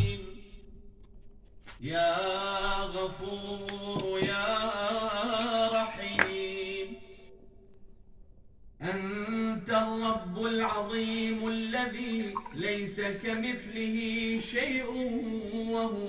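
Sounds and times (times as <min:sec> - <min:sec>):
man chanting a prayer: 0:08.8 - 0:16.0.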